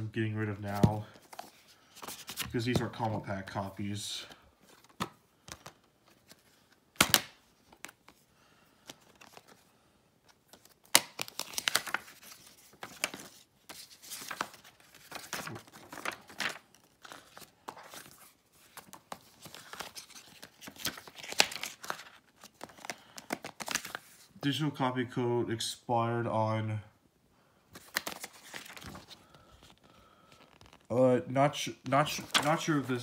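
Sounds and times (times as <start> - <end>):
paper and plastic crinkling: 10.5 - 24.3, 27.8 - 30.9, 31.9 - 33.0.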